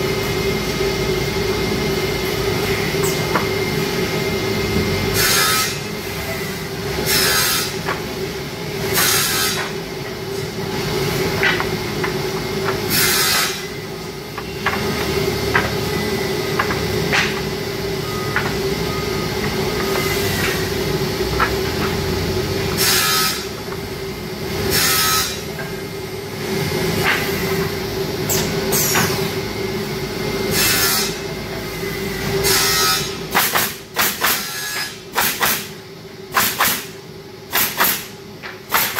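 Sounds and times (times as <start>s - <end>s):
machine hum: 0.0s - 38.7s
nail guns firing into boards: 37.5s - 38.1s.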